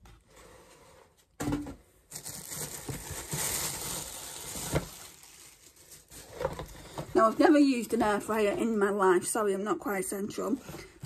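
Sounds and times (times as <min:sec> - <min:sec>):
plastic packaging crinkling: 0:02.1 - 0:07.4.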